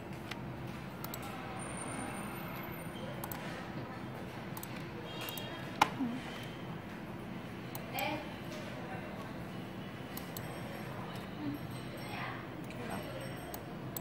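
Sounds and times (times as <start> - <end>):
computer mouse clicking: 1.0 - 1.3, 3.2 - 3.4.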